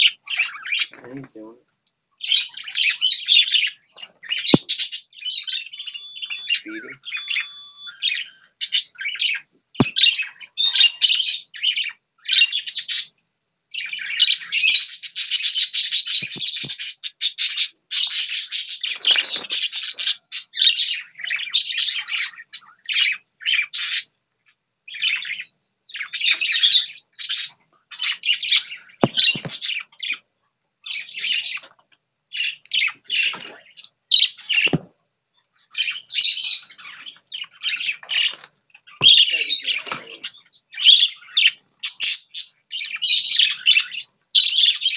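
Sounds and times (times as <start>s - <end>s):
budgerigars chattering and warbling: 0.0s - 1.5s, 2.2s - 13.1s, 13.7s - 24.1s, 24.9s - 30.2s, 30.8s - 31.7s, 32.3s - 34.8s, 35.6s - 44.9s
dull knocks: 29.0s - 29.6s.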